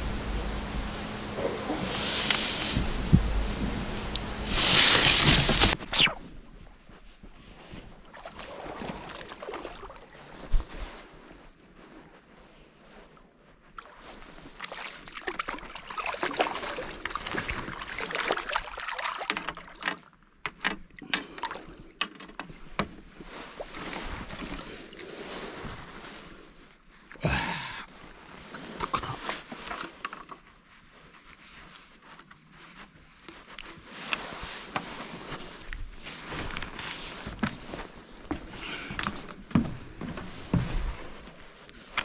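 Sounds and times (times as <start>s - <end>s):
water splashing and sloshing: 0.0s - 11.4s, 12.9s - 27.1s, 28.0s - 42.0s
handling rustles: 0.1s - 7.9s.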